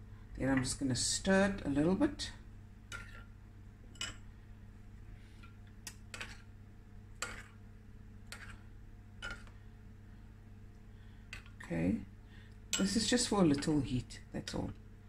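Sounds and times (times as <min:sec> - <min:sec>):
metal spoon stirring in bowl: 0:02.9 - 0:04.3, 0:05.8 - 0:06.5, 0:07.2 - 0:07.6, 0:08.2 - 0:09.6.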